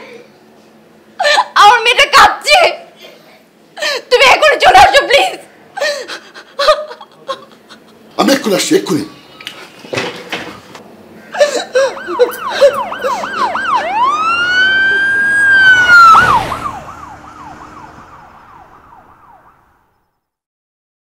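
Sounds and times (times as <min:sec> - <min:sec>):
emergency siren yelp and wail: 0:11.7 - 0:20.0.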